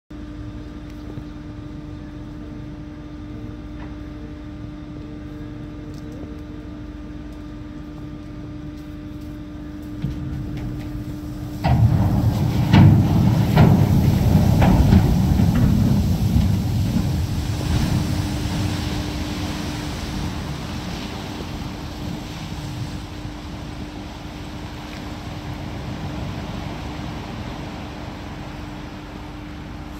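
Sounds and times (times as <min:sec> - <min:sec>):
steady low hum: 0:00.1 - 0:29.9
loud rumble with bangs: 0:09.4 - 0:28.0
water washing: 0:09.8 - 0:29.9.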